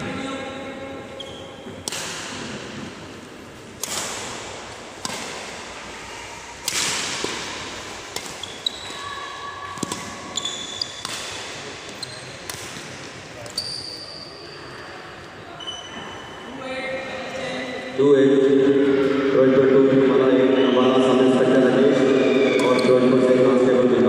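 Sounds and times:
shoes squeaking on court: 1.1s - 1.8s, 8.2s - 14.8s, 15.6s - 16.6s
racket striking shuttlecock: 1.8s - 2.6s, 3.7s - 5.7s, 6.6s - 9.0s, 9.7s - 13.6s.

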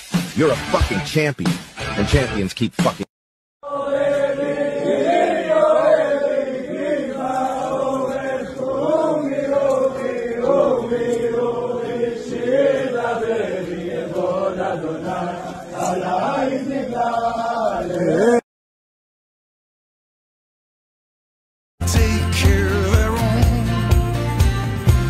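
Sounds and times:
men singing in unison: 3.6s - 18.4s, 21.8s - 23.9s.

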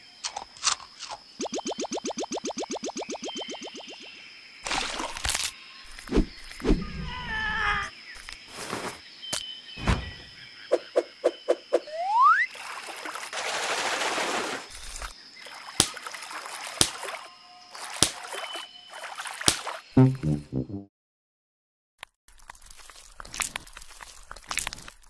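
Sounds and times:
wavering animal-like call: 6.8s - 7.9s.

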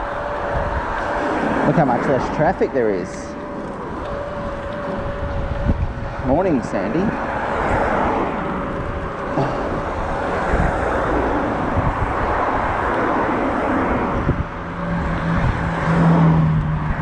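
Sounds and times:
steady low hum: 0.0s - 14.6s
cars passing: 0.0s - 17.0s
road noise: 0.0s - 17.0s
wind rushing over microphone: 0.0s - 17.0s.

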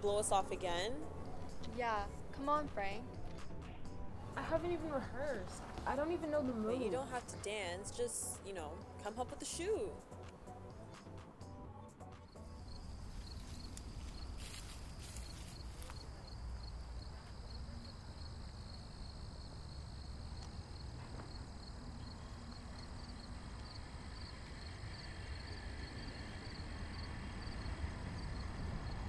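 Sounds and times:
insects trilling: 12.3s - 29.0s
low outdoor rumble: 12.3s - 29.0s.

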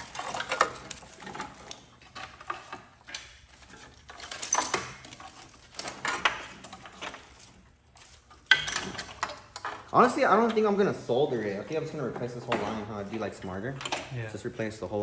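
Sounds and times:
wires and connectors rustling: 0.0s - 15.0s.

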